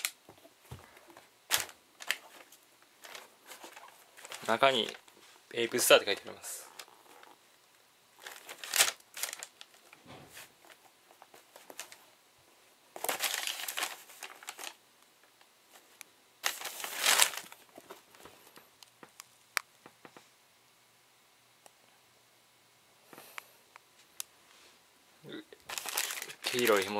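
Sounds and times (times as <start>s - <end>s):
paper crinkling: 0.0s - 7.3s, 8.2s - 12.1s, 13.0s - 14.8s, 15.7s - 18.6s, 25.6s - 26.9s.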